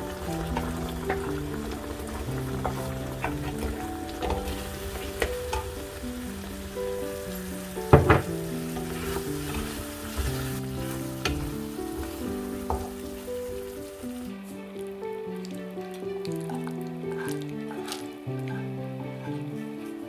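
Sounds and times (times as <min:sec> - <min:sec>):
sauce simmering in pan: 0:00.0 - 0:20.0
soft background music: 0:00.0 - 0:20.0
utensils scraping a pan: 0:02.6 - 0:05.8, 0:08.2 - 0:14.2, 0:16.4 - 0:20.0.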